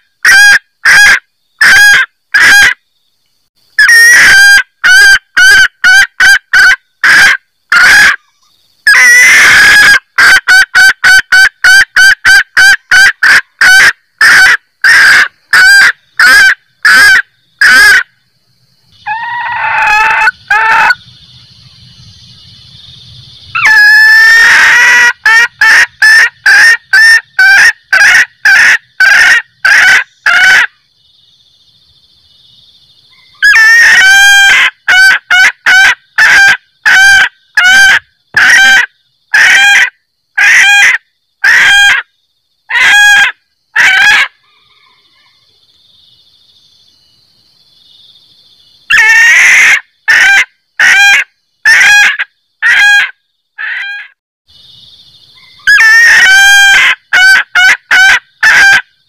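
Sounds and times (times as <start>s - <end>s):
hen junglefowl cackling: 0.0s - 2.8s, 3.8s - 8.3s, 8.9s - 18.1s, 19.0s - 21.0s, 23.6s - 30.8s, 33.1s - 42.1s, 42.7s - 45.5s, 48.9s - 54.2s, 55.4s - 58.9s.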